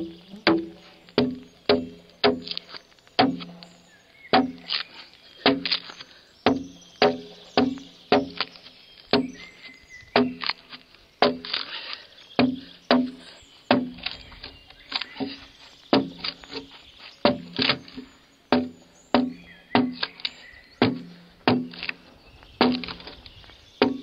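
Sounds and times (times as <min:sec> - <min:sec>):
axe chopping a log: 0:00.5 - 0:02.6, 0:03.2 - 0:03.5, 0:04.3 - 0:04.8, 0:05.4 - 0:05.8, 0:18.5 - 0:20.2, 0:20.8 - 0:21.9, 0:22.6 - 0:23.0.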